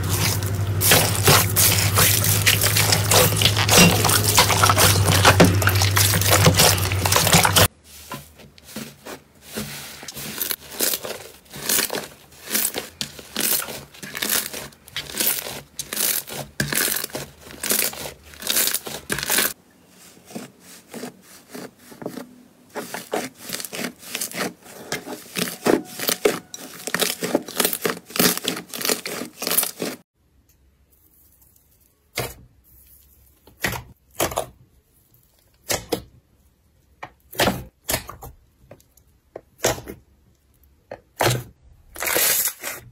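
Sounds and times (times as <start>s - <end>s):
slime crackling and popping: 0.0s - 7.7s, 10.4s - 19.6s
slime sloshing in water: 0.0s - 8.0s.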